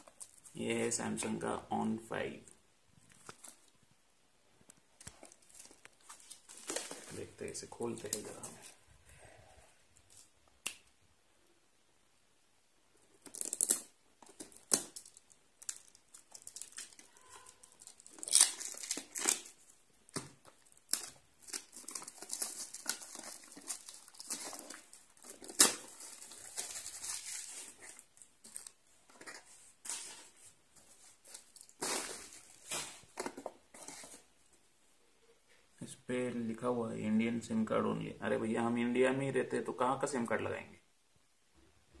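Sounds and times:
cardboard tearing and crinkling: 0:13.2 - 0:28.8, 0:31.2 - 0:34.2.

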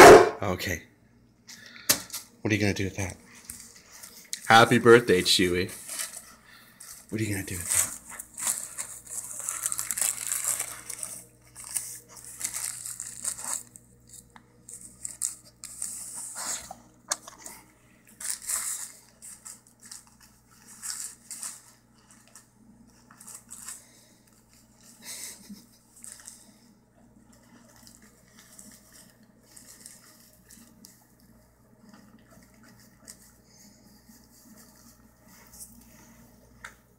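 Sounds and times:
paper crinkling and ripping: 0:03.3 - 0:16.8, 0:18.1 - 0:26.6, 0:27.2 - 0:31.0.

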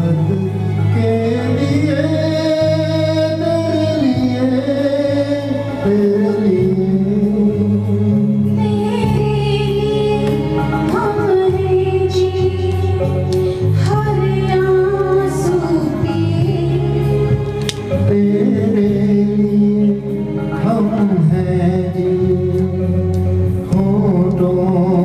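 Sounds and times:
man singing: 0:00.0 - 0:09.2, 0:17.1 - 0:25.0
instrumental accompaniment: 0:00.0 - 0:25.0
woman singing: 0:08.4 - 0:18.0.

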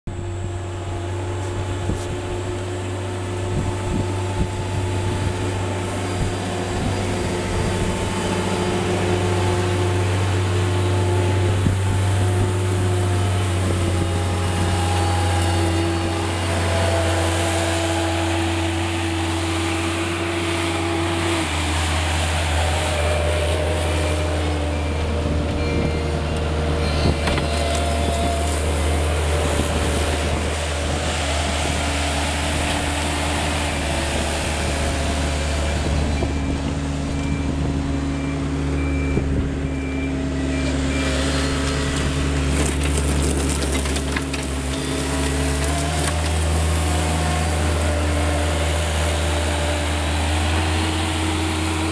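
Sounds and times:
diesel engine running: 0:00.0 - 0:51.9.

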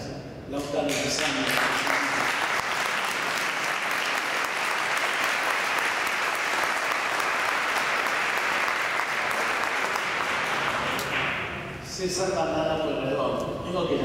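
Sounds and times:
audience applauding: 0:00.9 - 0:11.6.

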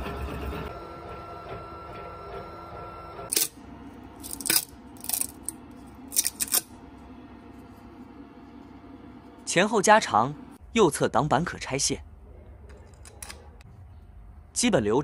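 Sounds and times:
printer motor whine: 0:00.0 - 0:04.2.

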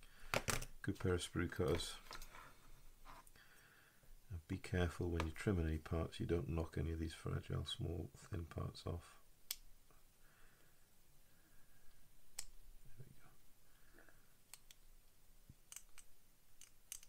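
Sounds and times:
faint sharp clicks of hobby tools: 0:14.0 - 0:14.8.

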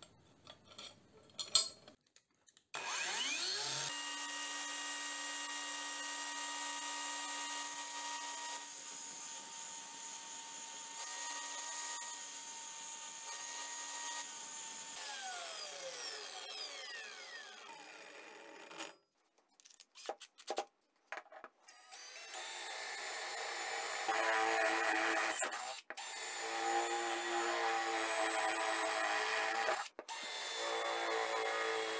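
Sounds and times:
angle grinder whining: 0:02.8 - 0:08.7, 0:14.9 - 0:18.9
cordless drill running: 0:02.8 - 0:08.8, 0:14.1 - 0:18.4, 0:22.0 - 0:28.8.

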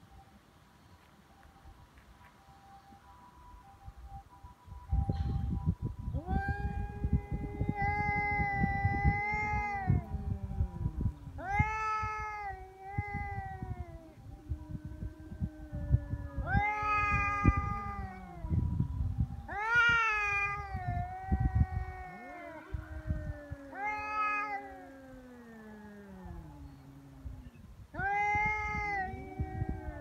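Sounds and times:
cats yowling: 0:06.2 - 0:30.0.

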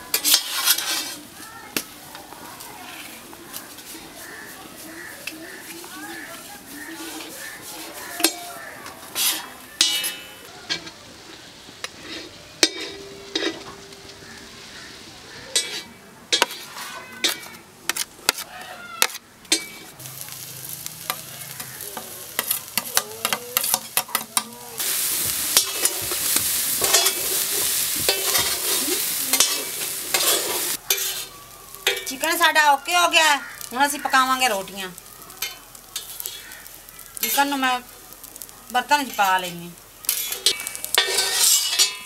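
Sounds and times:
meat sizzling on iron griddle: 0:00.0 - 0:17.3, 0:17.9 - 0:42.0
metal blade scraping hot iron: 0:00.1 - 0:01.2, 0:07.0 - 0:10.9, 0:15.5 - 0:18.4, 0:25.6 - 0:32.2, 0:40.0 - 0:42.0.

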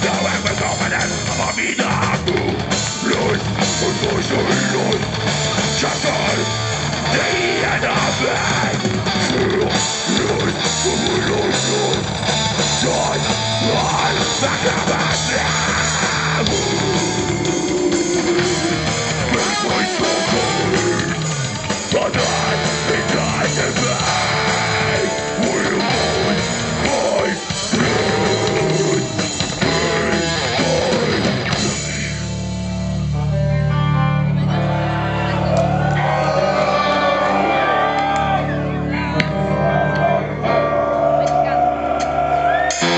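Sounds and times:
harsh vocals: 0:00.0 - 0:32.5, 0:35.3 - 0:42.9
drum kit: 0:00.0 - 0:33.2, 0:42.0 - 0:42.9
death metal band playing live: 0:00.0 - 0:42.9
distorted electric guitars: 0:00.0 - 0:42.9.

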